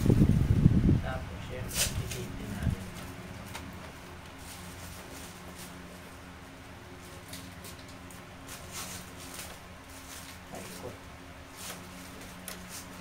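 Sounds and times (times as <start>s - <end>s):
low steady hum: 0.0s - 13.0s
paper and tape crinkling: 7.0s - 10.9s.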